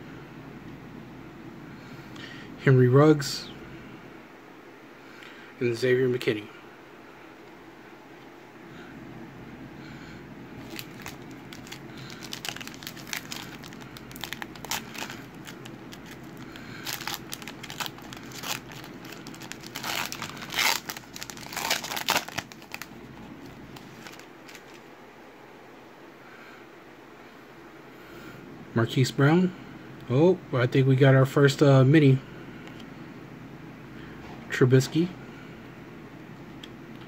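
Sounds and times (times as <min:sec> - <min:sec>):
foil wrapper tearing and crinkling: 0:10.6 - 0:24.8.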